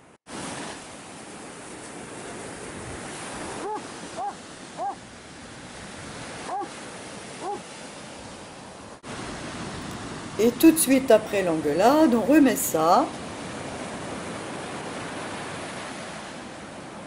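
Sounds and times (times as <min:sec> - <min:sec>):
surf washing onto beach: 0:00.3 - 0:17.0
dog barking: 0:03.6 - 0:05.0, 0:06.4 - 0:06.7, 0:07.4 - 0:07.6.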